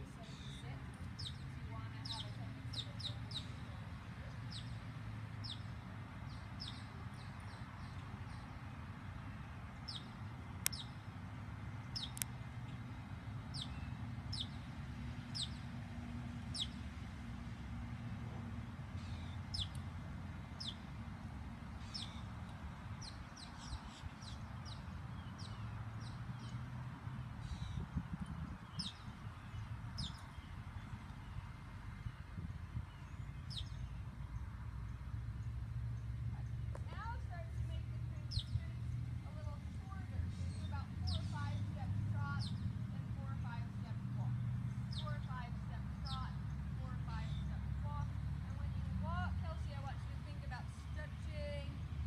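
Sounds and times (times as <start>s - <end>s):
birds chirping: 0.0s - 17.0s, 17.8s - 52.0s
sharp clicks: 11.9s - 12.4s.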